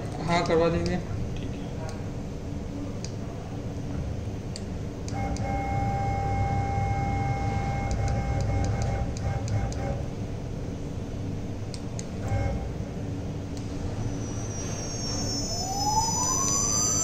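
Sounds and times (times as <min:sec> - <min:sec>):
cnc router hum: 0:05.1 - 0:10.2, 0:12.2 - 0:17.0
high-pitched whine: 0:05.1 - 0:10.2, 0:12.2 - 0:17.0.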